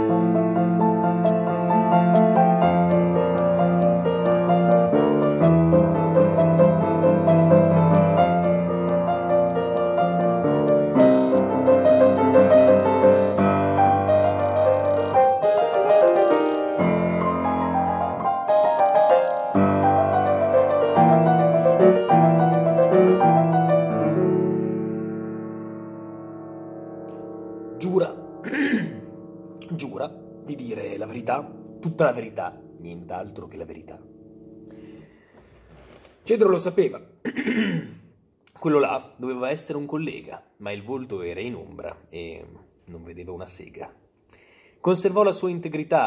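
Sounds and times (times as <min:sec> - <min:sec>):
grand piano solo: 0:00.0 - 0:35.2.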